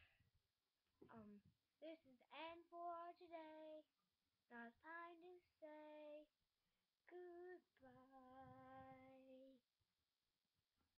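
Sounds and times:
girl singing: 0:01.1 - 0:03.9, 0:04.5 - 0:06.3, 0:07.1 - 0:09.6.

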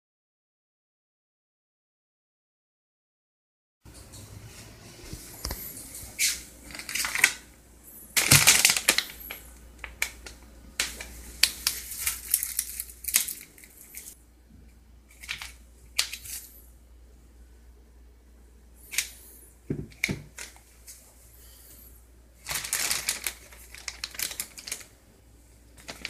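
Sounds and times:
plastic packaging crinkling: 0:05.4 - 0:07.5, 0:08.1 - 0:14.2, 0:15.1 - 0:16.6, 0:18.9 - 0:21.0, 0:22.4 - 0:25.0, 0:25.7 - 0:26.0.

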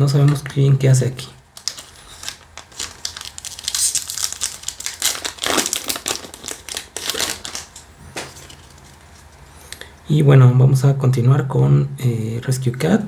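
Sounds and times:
foil wrapper crinkling: 0:01.6 - 0:09.4.

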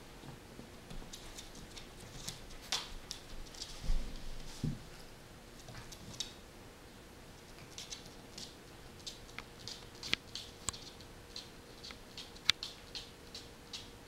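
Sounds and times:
puppy claws clicking on wood: 0:07.5 - 0:13.9.

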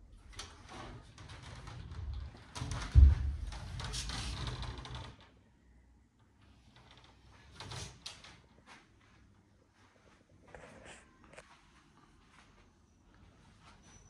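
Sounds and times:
knocks and rattles: 0:00.3 - 0:05.3.

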